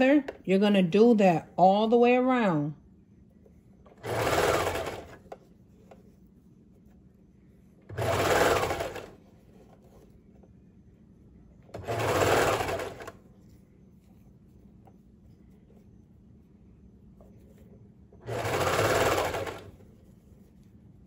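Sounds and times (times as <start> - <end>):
serger sewing machine running: 4.0 - 5.3, 7.9 - 9.2, 11.8 - 13.2, 18.2 - 19.7.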